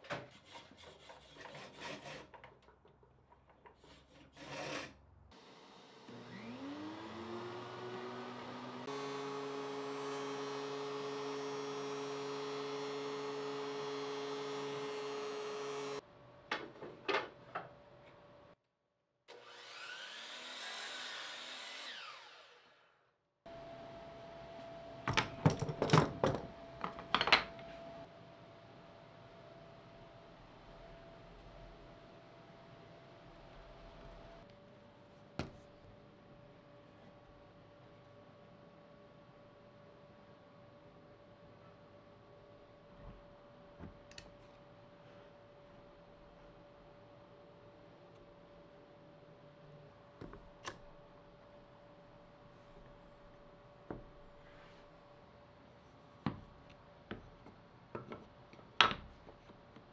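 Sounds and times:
power tool motor running: 5.4 - 16.0
rising and falling whine: 5.7 - 8.9.

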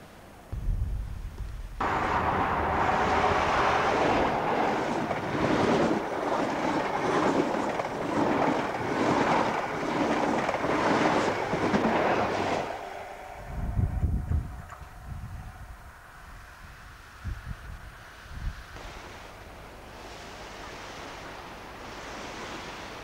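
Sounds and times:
train passing at speed: 0.4 - 23.0
wheels clattering on rails: 1.8 - 13.5.

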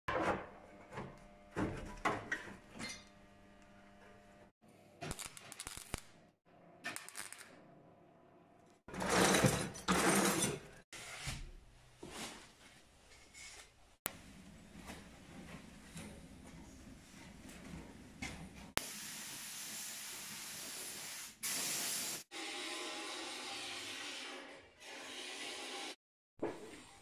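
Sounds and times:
welder crackling: 5.0 - 6.2.

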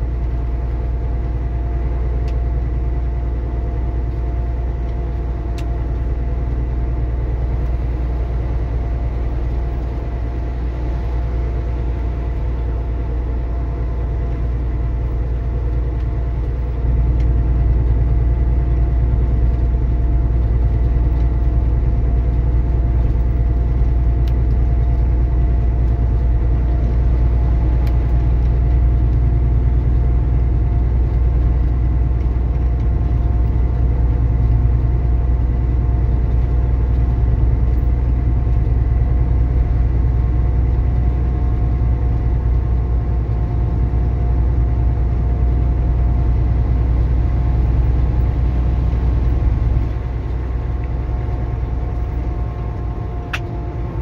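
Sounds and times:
road noise: 0.0 - 54.0
truck diesel engine drone: 0.0 - 54.0.

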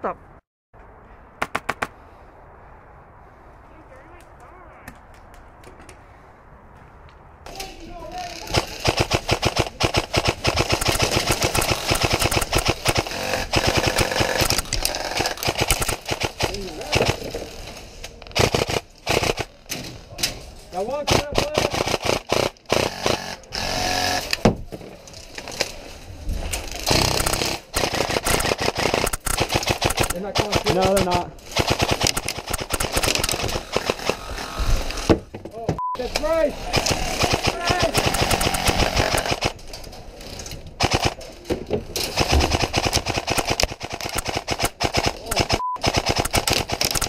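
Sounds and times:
airsoft rifle firing: 8.5 - 17.2, 26.9 - 34.5, 36.7 - 39.6, 40.8 - 41.2, 42.1 - 47.0.

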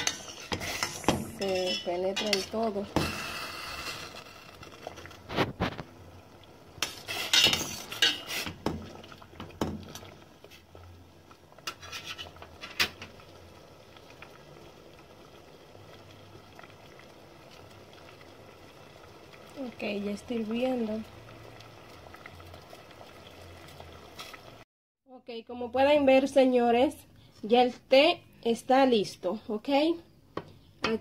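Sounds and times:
metal ladle clinking against pot: 1.3 - 2.5.

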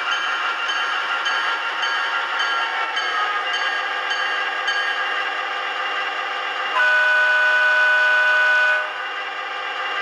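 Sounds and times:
chord horn blast: 6.8 - 8.9.

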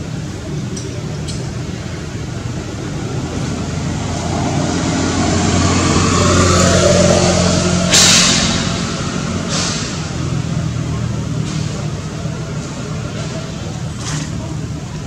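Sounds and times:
vehicle engine hum: 0.0 - 15.0
brief sharp hiss: 9.4 - 10.2.

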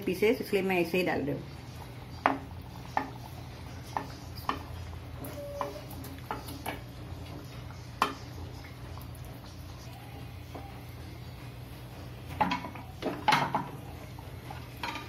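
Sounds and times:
frying pan knocking against pot: 2.2 - 3.2, 8.0 - 8.2, 12.3 - 13.8.

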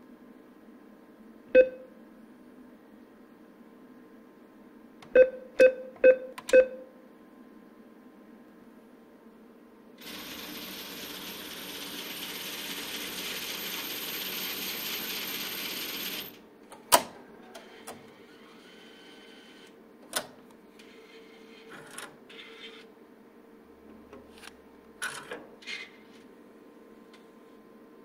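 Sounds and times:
cash dispenser whirring: 10.0 - 16.4, 17.4 - 19.8.

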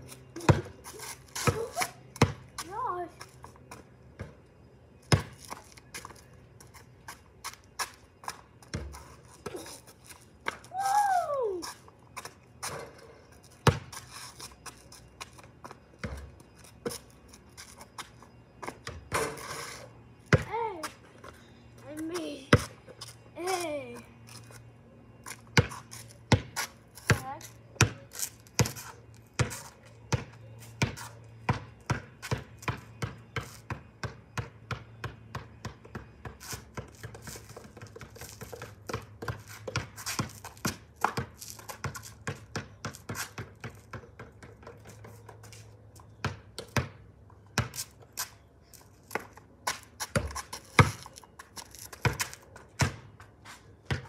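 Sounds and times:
basketball bouncing on concrete: 0.3 - 2.9, 4.2 - 4.4, 5.1 - 6.0, 7.8 - 9.6, 13.6 - 14.0, 15.2 - 17.0, 20.3 - 21.0, 22.0 - 23.6, 25.2 - 48.0, 49.1 - 54.0.

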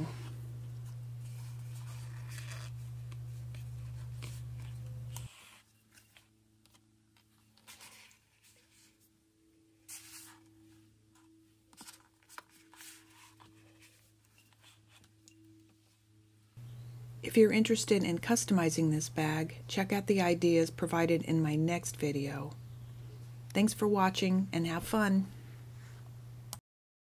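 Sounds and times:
steady low hum: 0.0 - 26.6.

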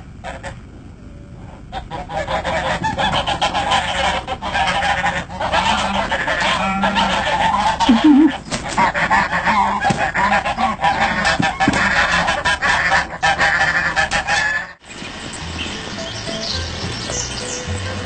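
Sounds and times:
goose honking loudly: 1.7 - 14.8.

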